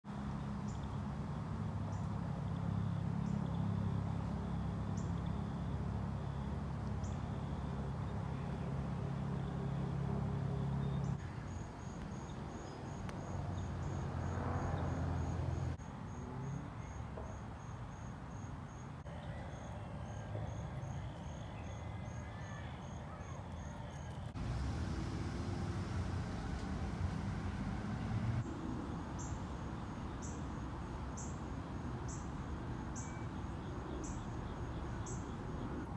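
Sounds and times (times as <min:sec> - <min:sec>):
insects chirping: 0:00.6 - 0:35.9
low steady hum: 0:24.2 - 0:31.1.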